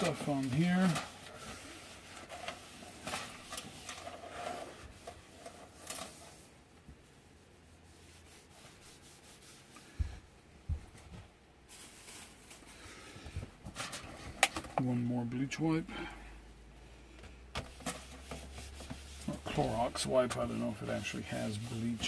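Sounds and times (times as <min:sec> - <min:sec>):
wipe rubbing on surface: 0:00.0 - 0:10.3, 0:11.7 - 0:12.8, 0:17.6 - 0:22.0.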